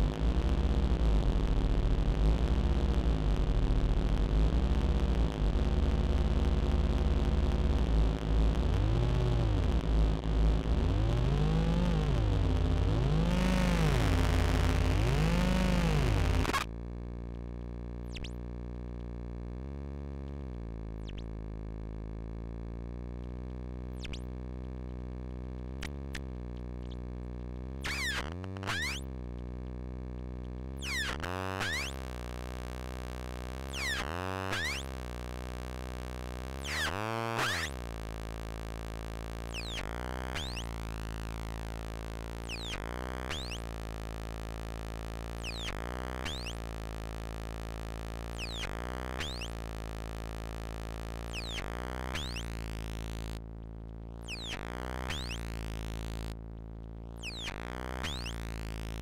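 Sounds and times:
synthesizer drone: 5.4 - 16.6.

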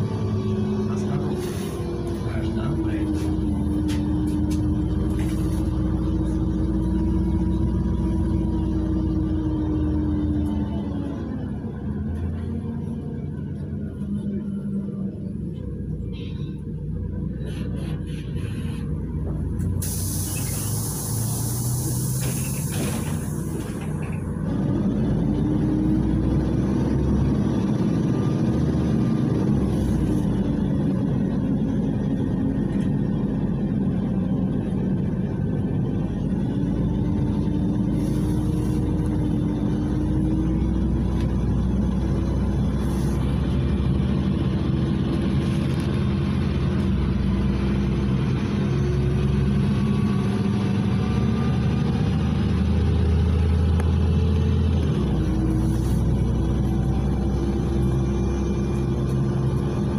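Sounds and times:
bus engine running: 0.0 - 59.9
hiss: 19.7 - 24.0
rising engine whine: 22.9 - 59.9.

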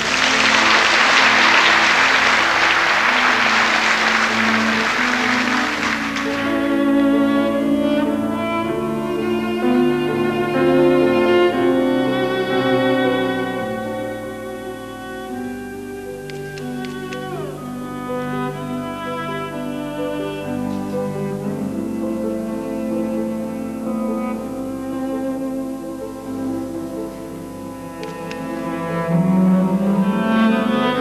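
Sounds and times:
audience applause: 0.0 - 7.1
solo cello melody: 0.0 - 31.0.

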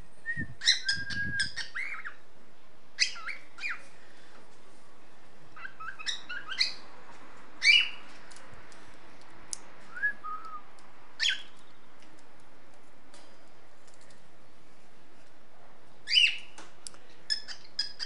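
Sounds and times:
cockatiel chirping whistles: 0.6 - 2.1.

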